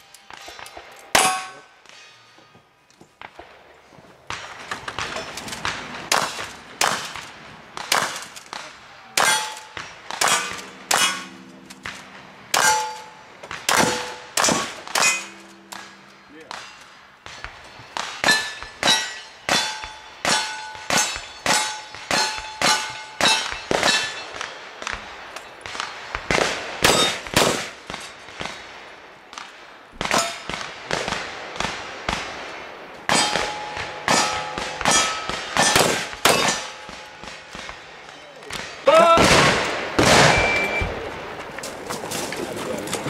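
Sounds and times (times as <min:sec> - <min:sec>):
steel target clanging: 0:00.0 - 0:02.6, 0:07.9 - 0:24.6, 0:30.0 - 0:30.6, 0:33.1 - 0:38.2, 0:39.5 - 0:41.0.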